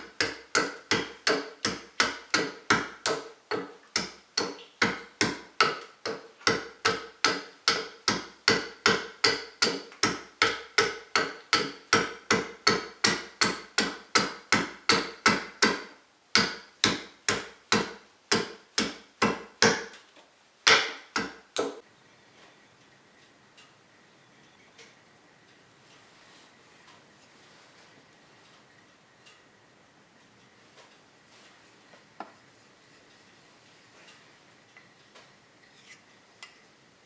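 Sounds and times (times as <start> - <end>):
wooden mallet striking a gouge: 0.0 - 20.0, 20.6 - 21.8.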